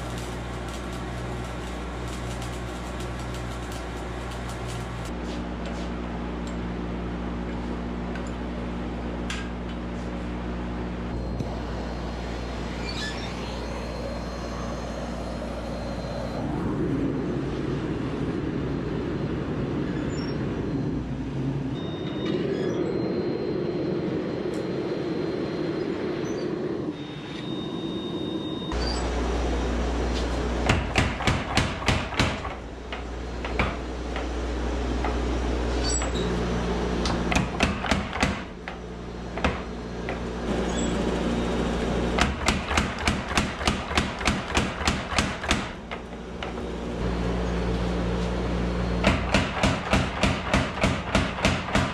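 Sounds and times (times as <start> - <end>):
heavy low hum: 0.0 - 22.0
forge burner roaring: 0.0 - 51.9
power hammer strikes: 30.6 - 34.3, 37.1 - 38.6, 42.1 - 46.0, 49.0 - 51.9.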